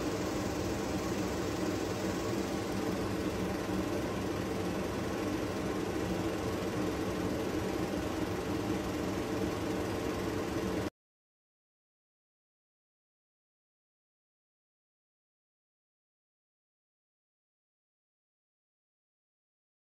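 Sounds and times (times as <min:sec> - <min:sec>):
mechanical hum with low drones: 0:00.0 - 0:10.9.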